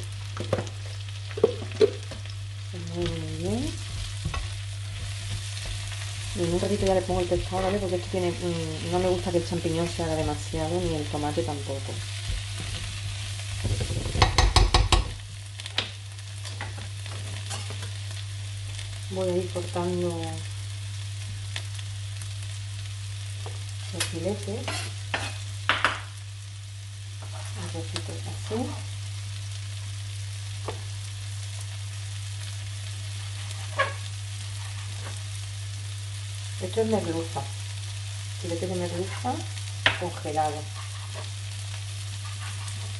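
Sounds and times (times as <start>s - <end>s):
constant low hum: 0.0s - 42.9s
vegetables sizzling in frying pan: 0.0s - 42.9s
spatula stirring in pan: 24.6s - 25.9s, 33.1s - 35.2s, 40.4s - 42.9s.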